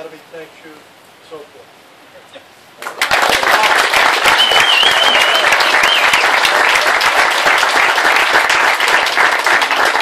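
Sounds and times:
crowd applauding: 0:02.8 - 0:10.0
wavering whistle: 0:04.3 - 0:06.4.

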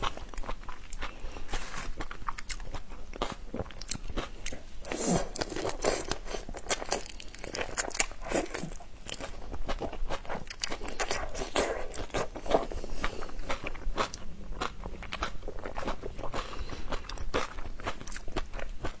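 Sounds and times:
shrimp shells crunching: 0:05.2 - 0:09.4.

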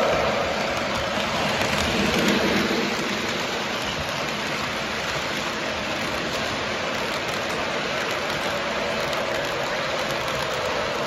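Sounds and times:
model train wheels on rails: 0:00.0 - 0:11.0.

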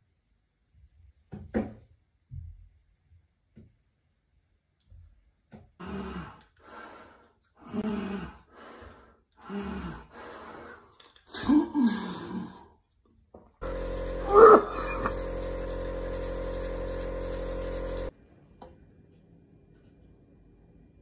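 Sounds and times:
nebulizer compressor humming: 0:13.6 - 0:18.1.

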